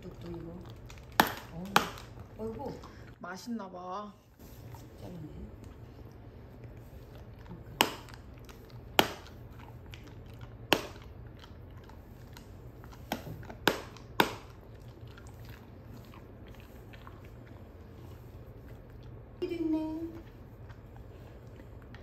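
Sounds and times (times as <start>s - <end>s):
dog crunching hard treat: 0.0s - 3.1s, 5.6s - 19.3s
faint chewing clicks: 0.0s - 3.2s, 5.4s - 19.4s, 20.1s - 22.0s.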